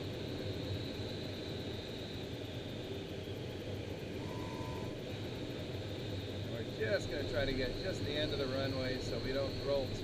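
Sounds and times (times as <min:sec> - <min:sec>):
faint brief tone: 0:04.2 - 0:05.0.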